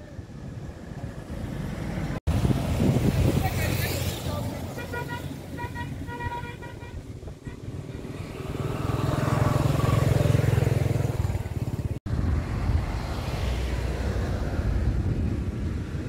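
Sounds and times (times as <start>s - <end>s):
vehicle engine passing by: 7.7s - 16.0s.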